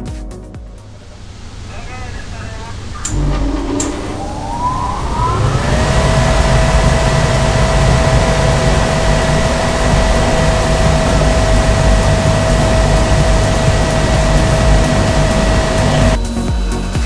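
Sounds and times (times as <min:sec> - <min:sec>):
fan motor whine: 0:00.8 - 0:16.2
rush of air: 0:02.8 - 0:16.2.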